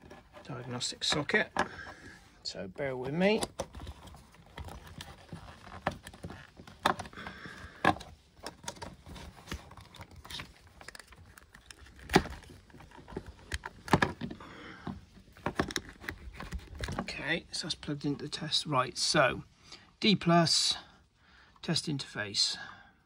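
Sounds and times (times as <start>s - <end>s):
cable plug clicking and rattling: 3.2s - 17.1s.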